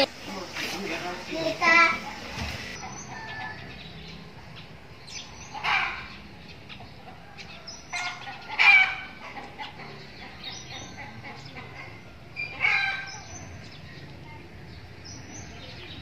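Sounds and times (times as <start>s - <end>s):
rooster crowing: 2.9s - 3.8s.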